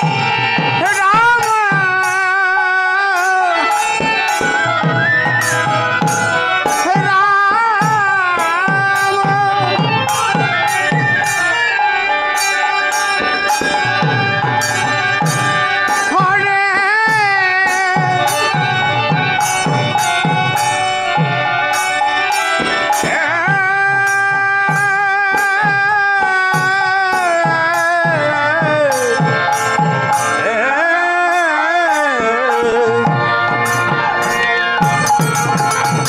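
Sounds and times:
hand cymbals ringing: 0.0 - 30.4, 31.4 - 36.0
barrel drums beating: 0.0 - 30.5, 31.9 - 36.0.

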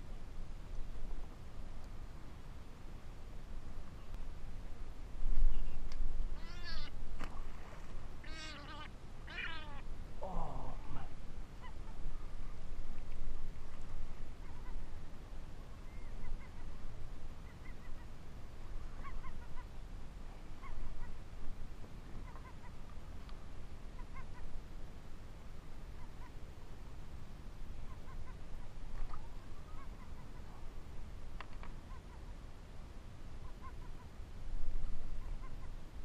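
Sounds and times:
gull calling: 6.4 - 7.0, 8.2 - 12.2, 14.4 - 14.9, 19.0 - 19.7, 22.2 - 22.8.

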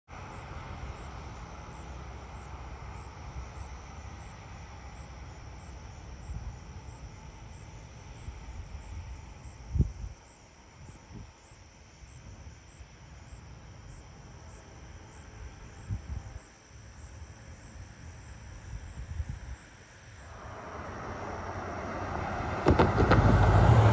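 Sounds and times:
insects chirping: 0.1 - 23.9
low rumble: 20.2 - 23.9
dull thump: 21.5 - 23.9.

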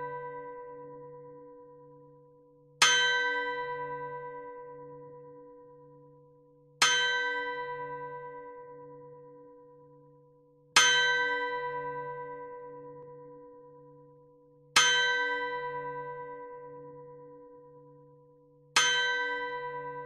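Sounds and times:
clock striking on a bell: 2.8 - 4.2, 6.8 - 8.2, 10.8 - 12.4, 14.8 - 16.4, 18.8 - 20.0.

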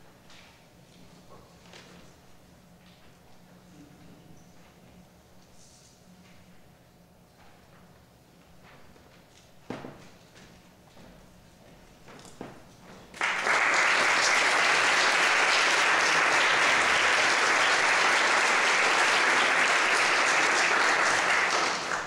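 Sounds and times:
audience applauding: 13.2 - 22.0.

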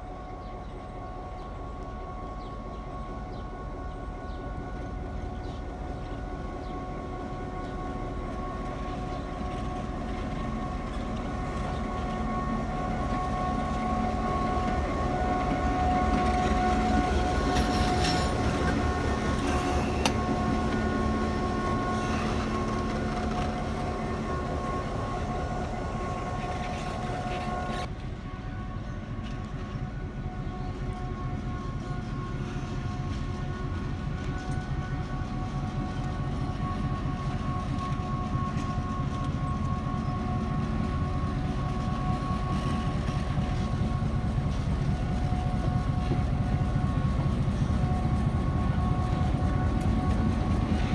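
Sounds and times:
diesel locomotive engine whine: 0.0 - 50.9
wheels clicking over rail joints: 14.6 - 20.9.

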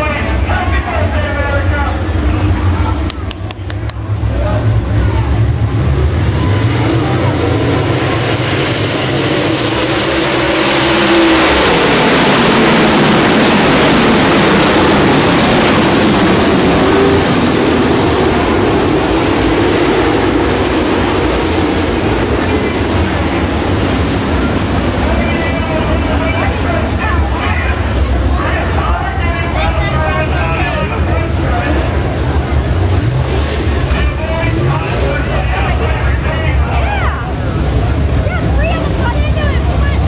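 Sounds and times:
race car engines running hard: 0.0 - 40.0.

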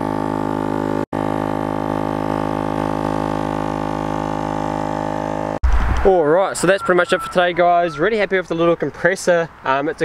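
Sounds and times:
air compressor humming: 0.0 - 5.6.

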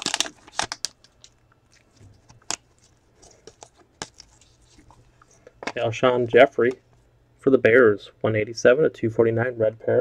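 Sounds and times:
foil wrapper crinkling: 0.0 - 5.5.

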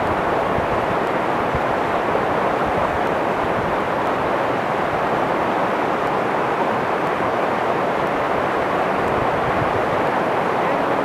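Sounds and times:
river rushing through boulders: 0.0 - 11.0.

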